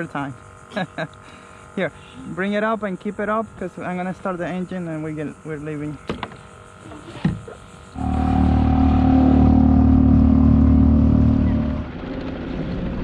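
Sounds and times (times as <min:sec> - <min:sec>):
small boat motor running: 0:07.9 - 0:12.4.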